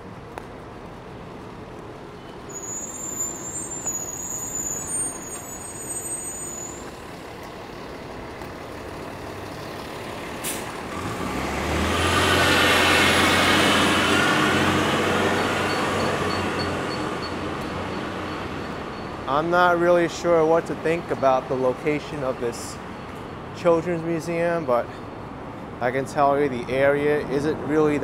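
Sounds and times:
heavy vehicle engine drone: 0:00.0 - 0:28.0
high-pitched squeals: 0:02.4 - 0:07.0.

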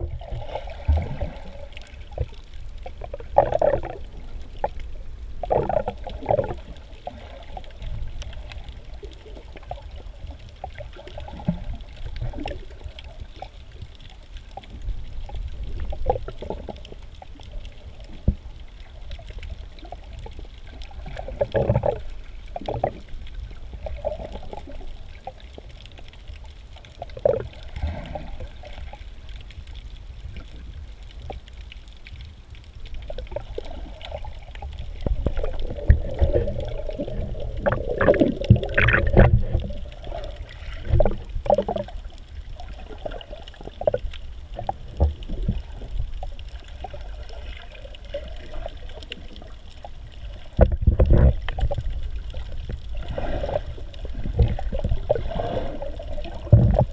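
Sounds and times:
gurgling and bubbling: 0:00.0 - 0:26.2, 0:26.8 - 0:29.4, 0:32.8 - 0:56.9
underwater water rumble: 0:00.0 - 0:56.9
underwater knocks: 0:35.0 - 0:39.8, 0:40.8 - 0:41.9, 0:50.5 - 0:51.9, 0:54.2 - 0:55.2, 0:56.4 - 0:56.9.

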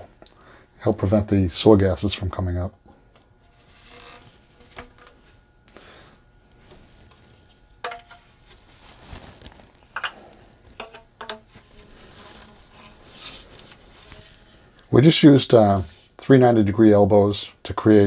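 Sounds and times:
soft rubbing: 0:03.3 - 0:05.6, 0:06.2 - 0:10.8, 0:11.4 - 0:16.6
plastic pipe fittings clicking: 0:09.9 - 0:11.4.

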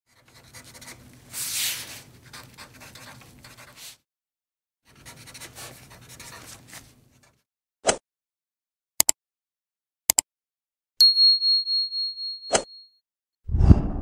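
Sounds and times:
pencil scribbling: 0:00.1 - 0:04.0, 0:04.9 - 0:07.4.

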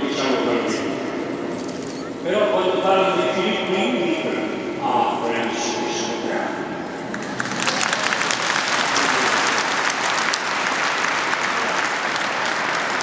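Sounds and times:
crowd applauding: 0:07.0 - 0:13.0.

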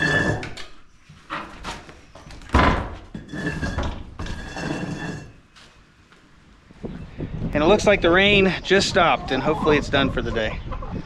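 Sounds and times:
hinges squealing: 0:00.0 - 0:01.8, 0:03.1 - 0:05.5
heavy door thud: 0:02.5 - 0:03.1.

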